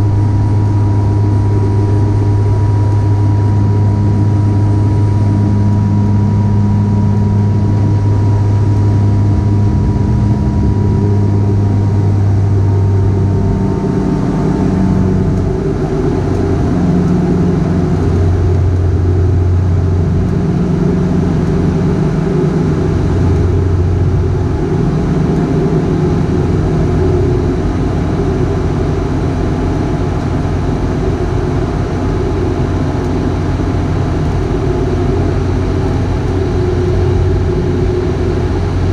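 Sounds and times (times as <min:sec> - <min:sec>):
faint high whine: 0:00.0 - 0:38.9
propeller drone in cabin: 0:00.0 - 0:38.9.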